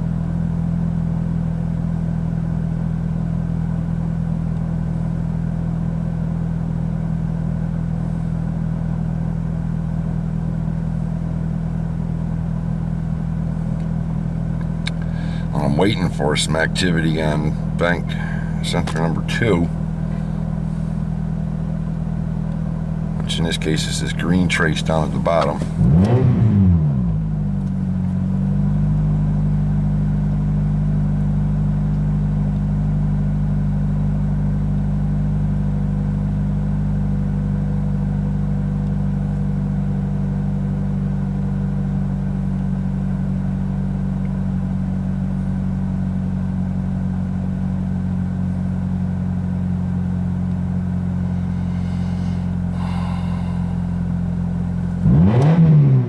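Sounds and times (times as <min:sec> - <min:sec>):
loud car engine idling: 0:00.0 - 0:56.0
engine revving: 0:23.2 - 0:27.7, 0:49.9 - 0:56.0.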